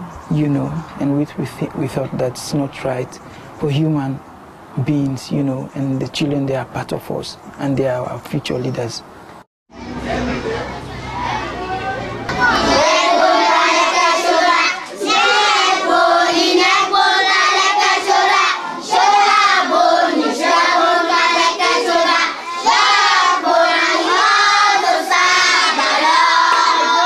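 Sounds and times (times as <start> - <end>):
children singing: 9.8 - 27.0.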